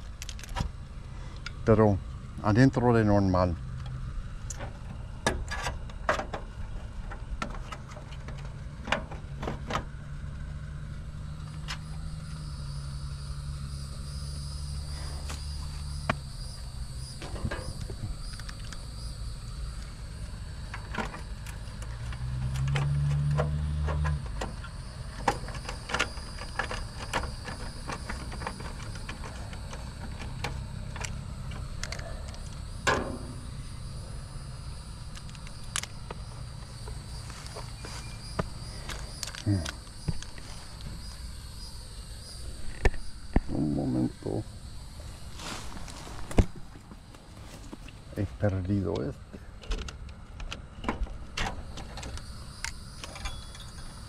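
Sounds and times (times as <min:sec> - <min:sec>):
low machine hum: 0:00.0 - 0:54.0
faint high steady tone: 0:11.1 - 0:23.2, 0:24.1 - 0:49.5, 0:51.8 - 0:54.0.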